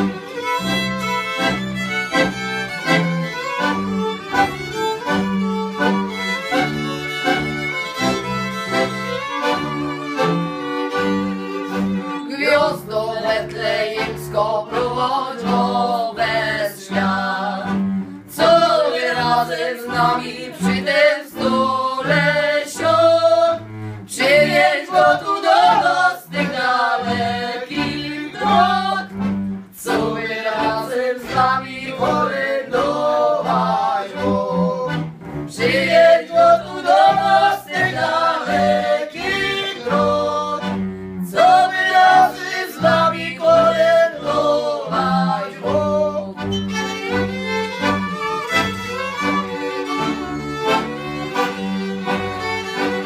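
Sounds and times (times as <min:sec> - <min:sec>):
button accordion: 0:00.0 - 0:53.0
violins playing folk tune: 0:00.0 - 0:53.0
women singing: 0:12.3 - 0:17.7, 0:18.3 - 0:29.1, 0:29.8 - 0:34.8, 0:35.5 - 0:40.6, 0:41.3 - 0:46.3.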